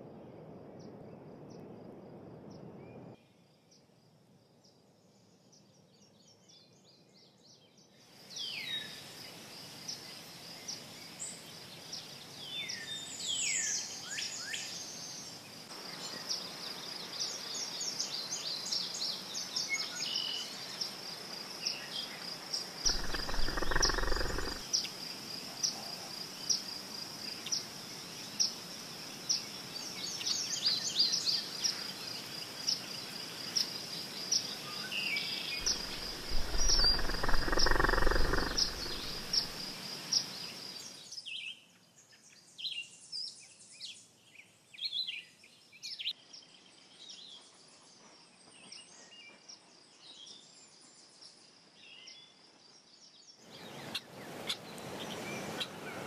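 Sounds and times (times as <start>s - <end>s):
insects chirping trill: 22.5s - 25.4s, 32.0s - 41.0s
birds calling: 22.9s - 24.6s, 35.6s - 39.7s.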